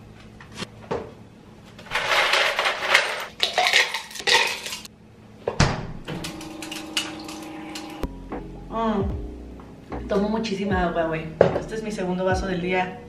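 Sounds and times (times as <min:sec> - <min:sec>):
ice cubes clattering in plastic bin: 0:01.8 - 0:04.9
refrigerator dispenser humming: 0:05.5 - 0:08.1.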